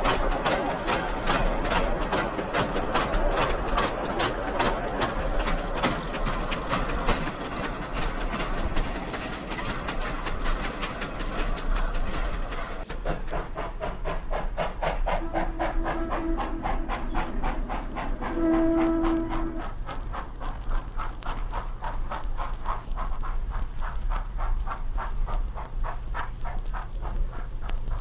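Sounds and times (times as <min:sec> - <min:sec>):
rhythmic steam chuff: 0:00.0 - 0:28.0
train whistle blasts: 0:15.2 - 0:19.7.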